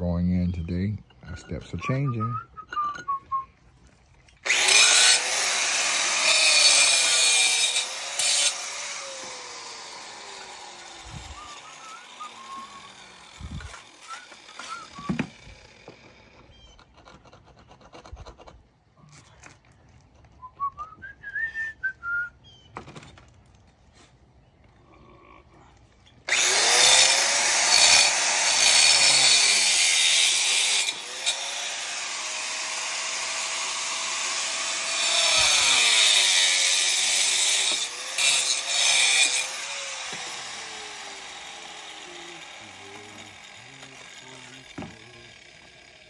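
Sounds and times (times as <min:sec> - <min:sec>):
electric cutting tool: 0:04.4 - 0:16.5, 0:26.3 - 0:46.0.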